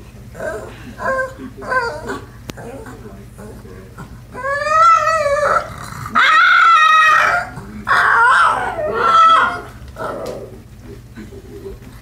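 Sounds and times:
dog whining and howling: 0:00.4 - 0:02.3, 0:04.3 - 0:10.6.

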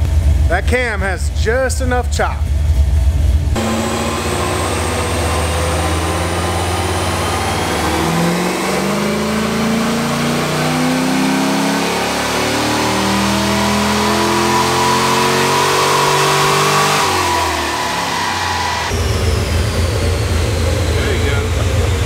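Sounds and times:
car engine revving: 0:00.0 - 0:22.0
engine idling with choppy lope: 0:18.9 - 0:22.0.

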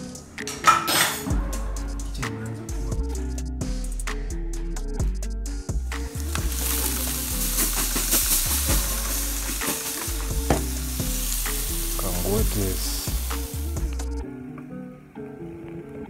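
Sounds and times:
chicken sizzling on grill: 0:06.1 - 0:14.1.

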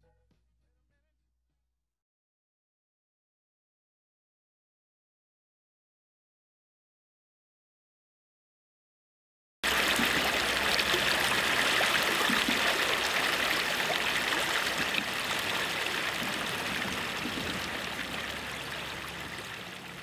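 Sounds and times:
rushing river water: 0:09.6 - 0:20.0.

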